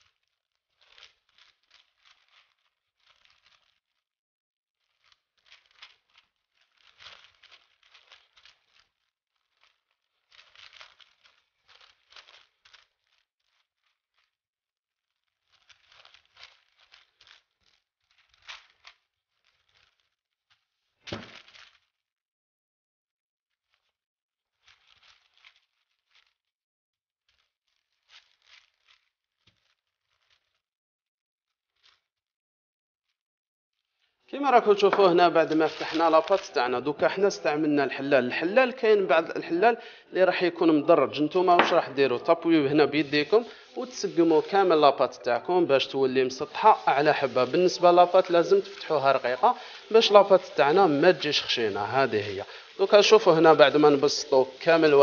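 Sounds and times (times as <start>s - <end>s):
parchment paper crinkling: 0.0s - 4.1s, 4.8s - 14.4s, 15.0s - 22.0s, 23.6s - 26.5s, 27.2s - 30.7s, 31.6s - 32.1s, 33.8s - 55.0s
rolling pin on baking paper: 34.4s - 55.0s.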